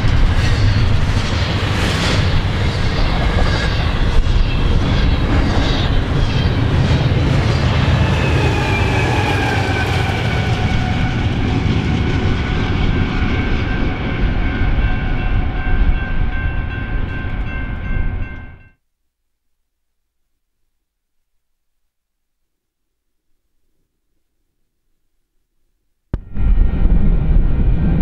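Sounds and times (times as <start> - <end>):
train wheels rumbling on rail: 0.0 - 18.6
steady high tones: 0.1 - 10.8.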